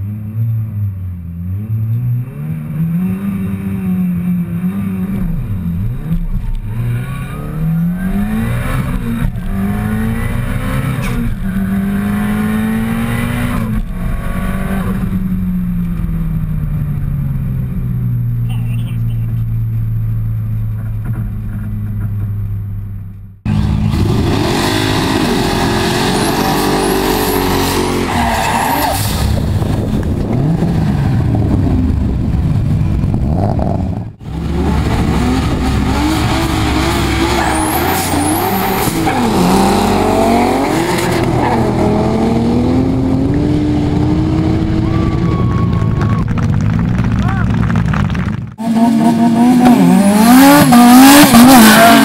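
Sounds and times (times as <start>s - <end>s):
car engines revving hard: 0.0s - 19.6s, 23.5s - 52.0s
tyre squeal and skidding: 11.0s - 12.3s, 25.6s - 29.4s, 36.9s - 39.7s.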